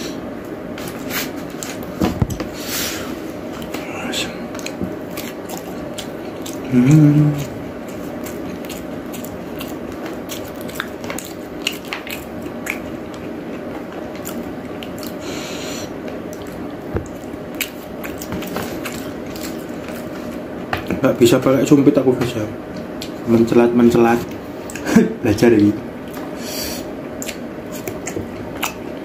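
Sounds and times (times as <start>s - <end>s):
background hum: 0.0s - 29.0s
chewing: 3.6s - 20.9s, 27.1s - 29.0s
person humming: 6.6s - 7.7s.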